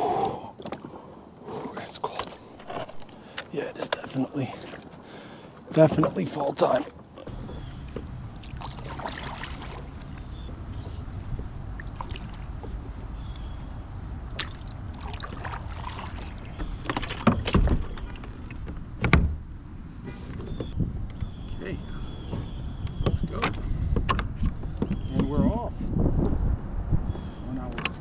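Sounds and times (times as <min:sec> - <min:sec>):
paddle strokes in water: 0:02.6 - 0:13.4, 0:14.3 - 0:18.6
steady low rumble: 0:07.3 - 0:16.6
paddle knocking against hull: 0:14.4 - 0:19.4.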